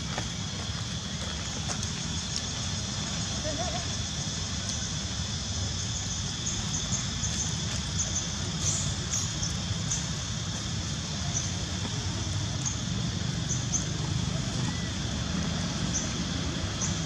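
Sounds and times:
constant high hiss: 0:00.0 - 0:17.0.

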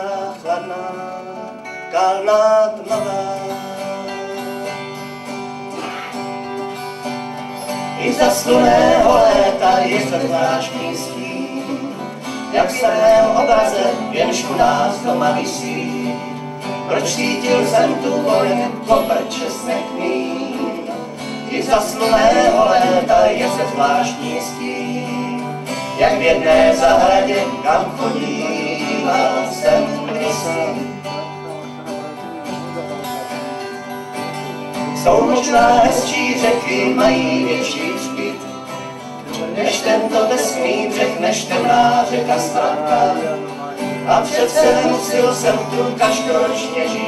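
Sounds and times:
acoustic band playing: 0:00.0 - 0:47.0
acoustic guitars: 0:00.0 - 0:47.0.

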